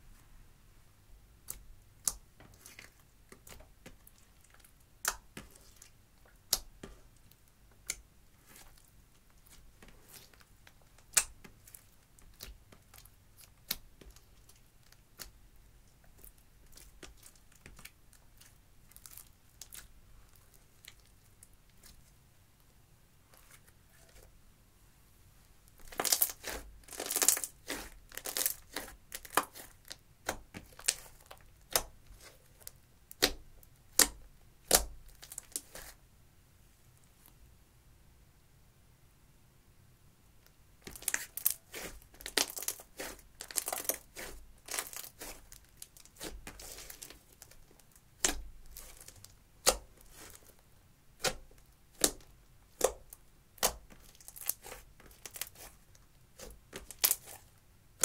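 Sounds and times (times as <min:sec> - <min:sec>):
slime squishing with sticky pops: 0:01.4 - 0:22.1, 0:25.7 - 0:36.0, 0:40.8 - 0:50.6, 0:51.2 - 0:58.0
wet crackling slime pops: 0:25.9 - 0:32.0, 0:51.2 - 0:55.7.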